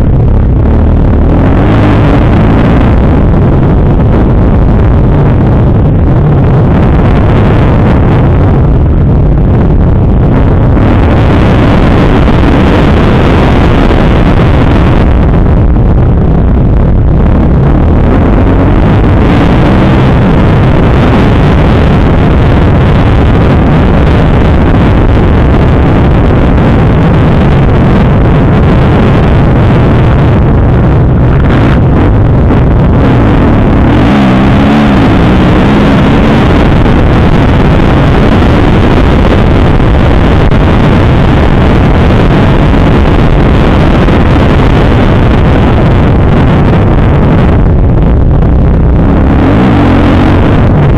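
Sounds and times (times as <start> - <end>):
wind buffeting microphone: 0.0 - 50.9
motocross engine revving: 0.7 - 3.5, 32.8 - 38.6.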